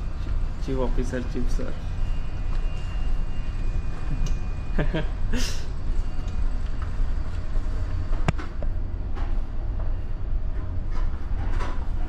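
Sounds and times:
ship engine low rumble: 0.0 - 12.0.

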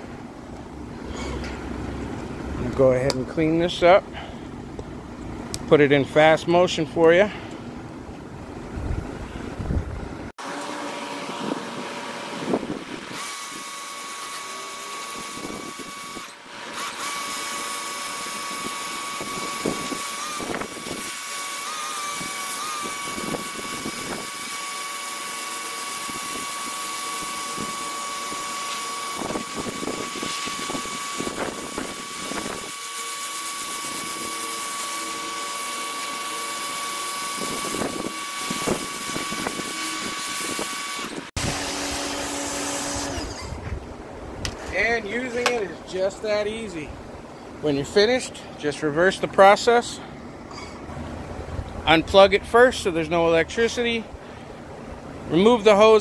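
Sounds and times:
pressure washer motor whine: 10.2 - 43.6.

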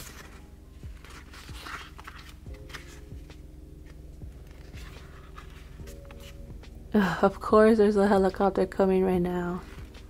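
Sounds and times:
paper pages rustling: 0.0 - 6.4, 9.6 - 10.0.

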